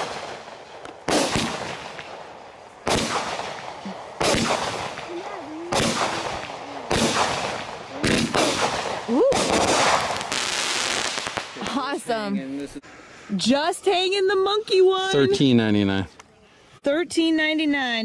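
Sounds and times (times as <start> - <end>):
fireworks booming: 0.0 - 12.1.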